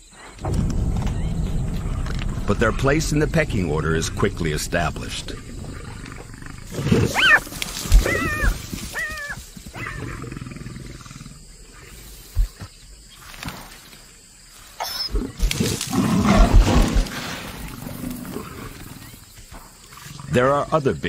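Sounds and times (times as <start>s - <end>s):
lion snarling: 3.8s - 11.5s
jackal yelping: 6.2s - 10.2s.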